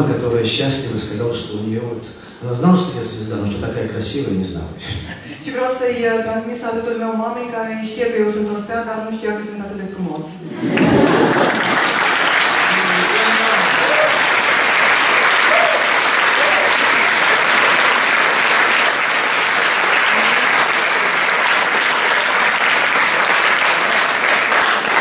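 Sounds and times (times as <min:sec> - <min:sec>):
audience applauding: 0:10.6 - 0:25.0.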